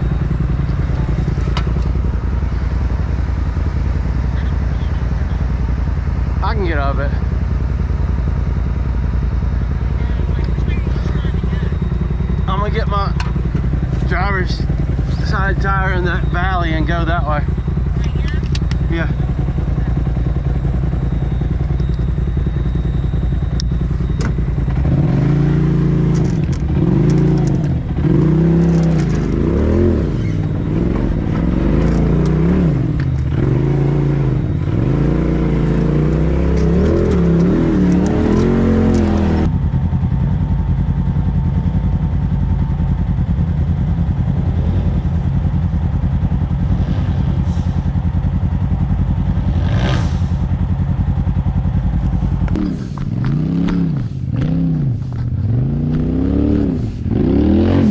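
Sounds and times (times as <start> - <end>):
off-road vehicle engine revving: 0.0 - 40.2, 41.4 - 57.9
engine running at low revs: 0.0 - 57.9
clatter: 26.0 - 30.6, 31.2 - 33.5, 41.5 - 57.1.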